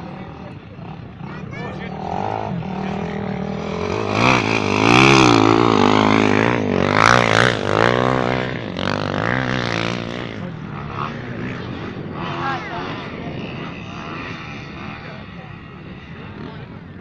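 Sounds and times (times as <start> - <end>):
motorcycle engines revving: 0.0 - 17.0.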